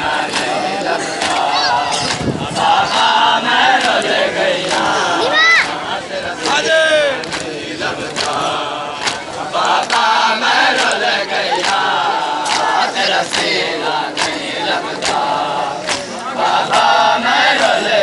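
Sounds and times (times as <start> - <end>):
men chanting together: 0.0 - 18.0
hands slapping chests: 7.2 - 7.5, 8.1 - 10.1, 10.7 - 11.0, 11.6 - 16.8.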